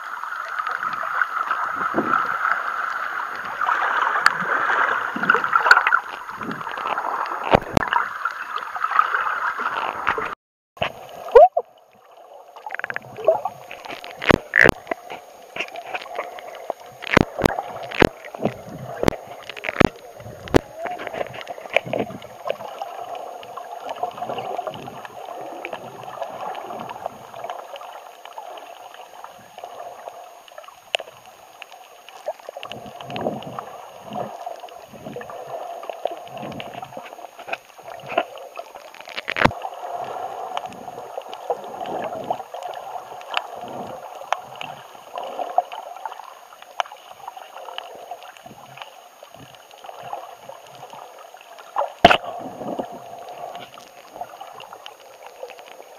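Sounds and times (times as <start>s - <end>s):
muffled underwater water rush: 0.0s - 55.9s
sharp underwater clicks: 5.2s - 8.4s, 12.6s - 22.8s, 35.9s - 39.6s, 51.6s - 55.9s.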